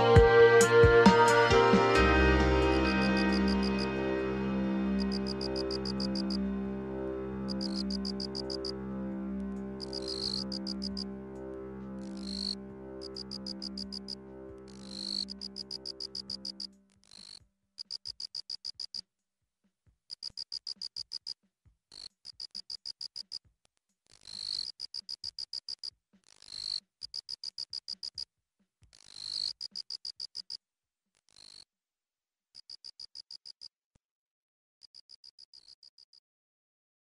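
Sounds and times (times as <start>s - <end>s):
cricket chirping: 5.0s - 6.4s, 7.5s - 8.7s, 9.8s - 11.0s, 12.0s - 19.0s, 24.2s - 28.3s, 29.0s - 30.6s, 31.3s - 31.6s.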